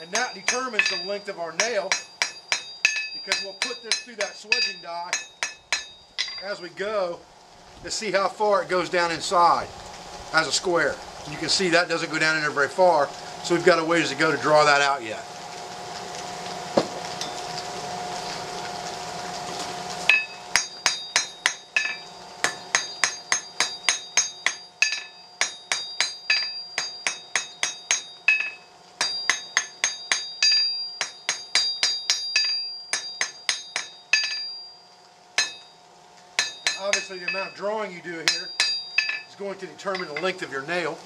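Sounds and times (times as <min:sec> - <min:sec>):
hammer striking steel on anvil: 0:00.0 - 0:06.6, 0:20.1 - 0:34.6, 0:35.4 - 0:35.7, 0:36.4 - 0:37.6, 0:38.2 - 0:40.4
steady hiss: 0:00.0 - 0:41.0.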